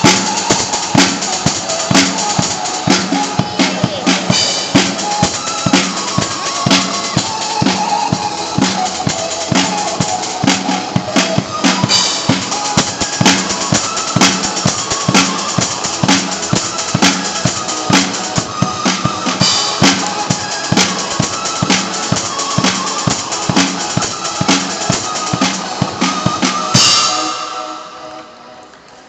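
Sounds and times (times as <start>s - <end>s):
acoustic drum kit beat: 0.0s - 28.4s
electronic dance music: 0.0s - 28.6s
cymbal crashes: 24.6s - 28.6s.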